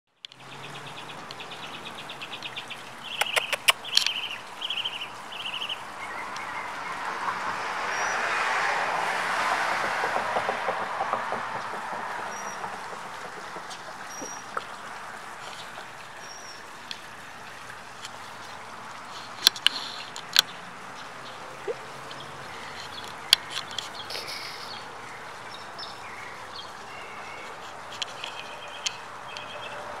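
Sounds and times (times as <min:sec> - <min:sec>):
steady outdoor hiss: 0:00.1 - 0:30.0
sharp clicks: 0:03.1 - 0:04.2.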